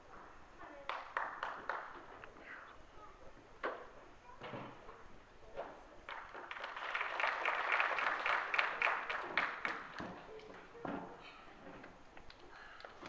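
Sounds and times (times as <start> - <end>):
audience clapping: 0.8 - 2.1, 6.1 - 10.7
faint chatter: 1.9 - 6.6.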